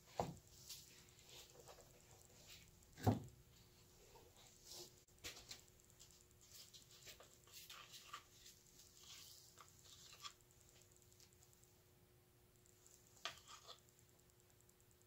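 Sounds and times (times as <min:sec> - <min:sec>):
faint rustles and ticks: 0:00.0 - 0:11.8.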